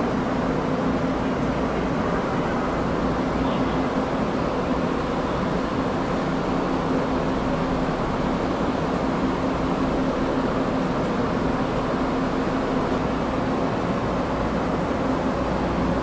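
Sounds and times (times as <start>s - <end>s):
standing train humming: 0.0s - 16.0s.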